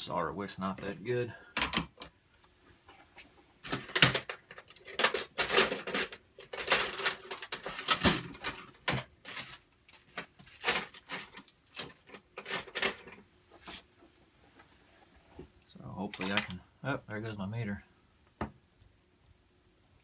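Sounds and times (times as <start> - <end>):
small objects rustling and clattering: 2.8 - 14.8.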